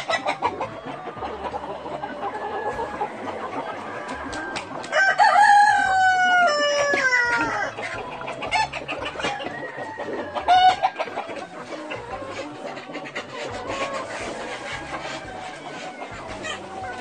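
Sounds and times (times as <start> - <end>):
hens clucking: 0.0 - 17.0
rooster crowing: 4.9 - 7.8, 9.2 - 11.0.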